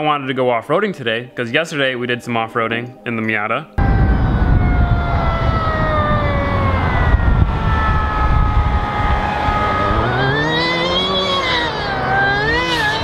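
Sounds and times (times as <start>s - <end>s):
low rumble: 3.8s - 9.7s
car engine driving by: 3.8s - 13.0s.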